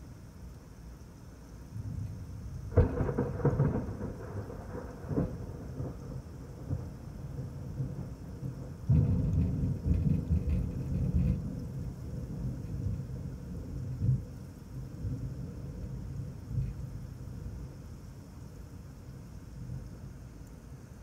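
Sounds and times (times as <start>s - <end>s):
thunder crack and rumble: 1.8s - 18.0s.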